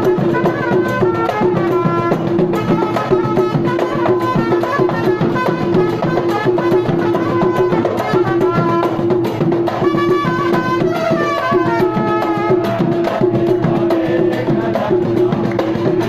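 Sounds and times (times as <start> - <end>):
wind instrument melody: 0.0 - 13.2
frame drums and large drum beating: 0.0 - 16.0.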